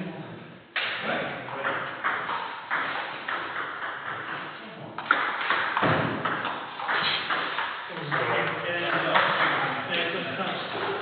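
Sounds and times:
ping pong ball hitting bats: 0:00.8 - 0:10.1
ping pong ball bouncing on table: 0:01.6 - 0:09.6.

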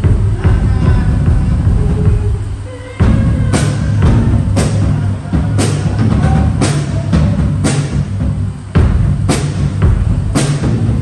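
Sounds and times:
drum kit steady beat: 0:00.0 - 0:11.0.

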